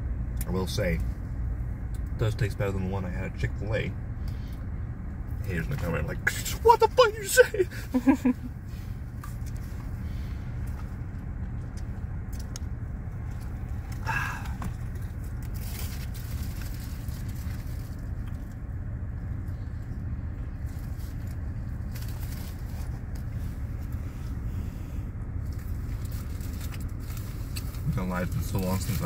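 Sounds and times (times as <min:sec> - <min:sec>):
low rumble inside car: 0:00.0 - 0:29.0.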